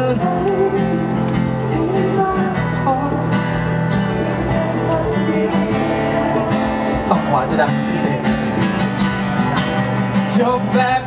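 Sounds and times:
acoustic guitar strummed and picked: 0:00.0 - 0:11.0.

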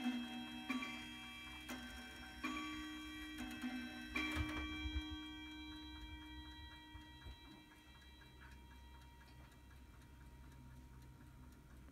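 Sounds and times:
clock strike ringing: 0:00.0 - 0:10.6
clock ticking: 0:00.0 - 0:11.9.

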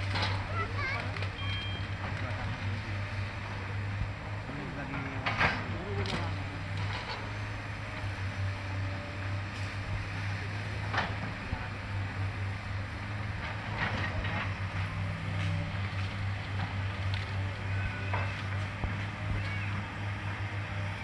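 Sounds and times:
excavator diesel engine running: 0:00.0 - 0:21.0
branches cracking and knocking: 0:15.4 - 0:17.4.

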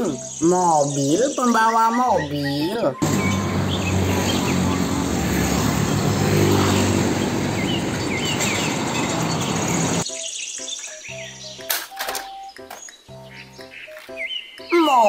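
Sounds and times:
road noise: 0:03.0 - 0:10.0
truck diesel engine hum: 0:03.0 - 0:10.0.

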